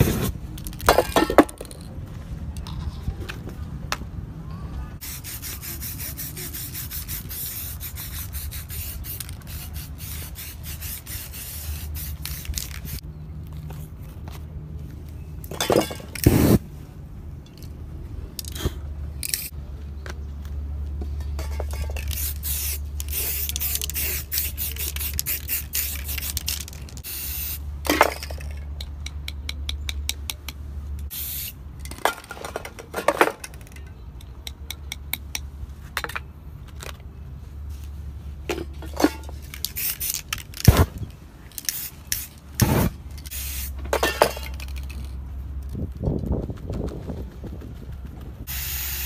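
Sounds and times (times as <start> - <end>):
spray paint cans hissing: 5.0 - 13.0, 16.1 - 16.6, 18.4 - 19.5, 21.4 - 28.8, 31.0 - 32.0, 38.6 - 45.2, 48.4 - 49.0.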